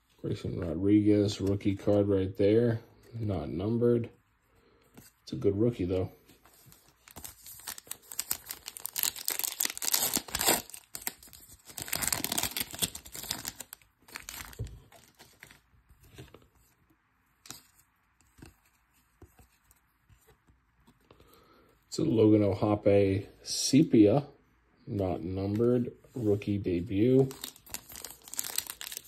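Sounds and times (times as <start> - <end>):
faint wrapper rustles: 6.3 - 16.4, 27.2 - 29.0
card pack wrapper tearing: 7.0 - 15.6, 27.2 - 29.0.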